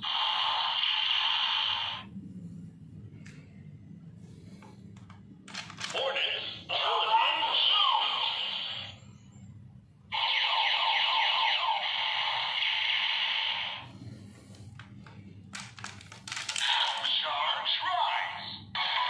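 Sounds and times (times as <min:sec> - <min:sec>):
toy electronic zaps: 0:00.0 - 0:02.0
plastic clicks: 0:04.6 - 0:06.0, 0:14.5 - 0:17.1.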